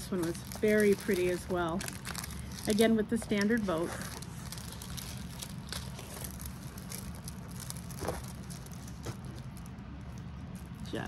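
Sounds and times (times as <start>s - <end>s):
plastic sleeve crinkling: 0.0s - 11.0s
steady low hum: 0.0s - 11.0s.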